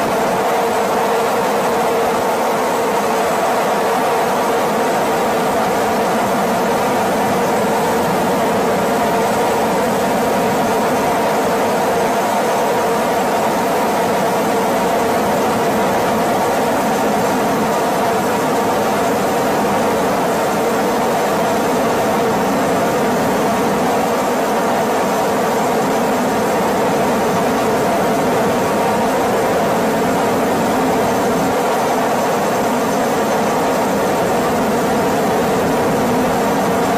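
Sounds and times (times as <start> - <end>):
aircraft engine drone: 0.0 - 36.9.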